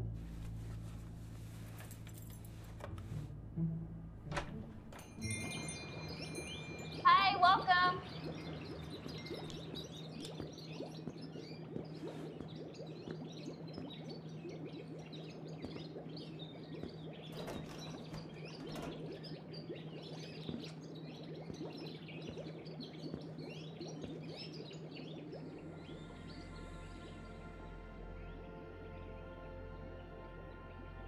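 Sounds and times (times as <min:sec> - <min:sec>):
steady low hum: 0:00.0 - 0:30.8
small birds chirping: 0:05.3 - 0:27.2.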